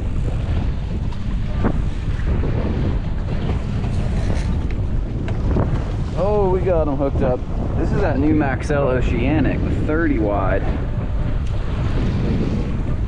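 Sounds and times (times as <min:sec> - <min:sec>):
waves against boat hull: 0:00.0 - 0:08.2
wind rumbling on microphone: 0:00.0 - 0:13.0.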